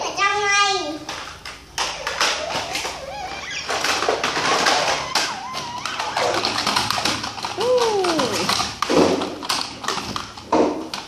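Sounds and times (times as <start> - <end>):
plastic toy trucks clattering: 1.0 - 11.0
toy trucks scraping: 1.8 - 10.5.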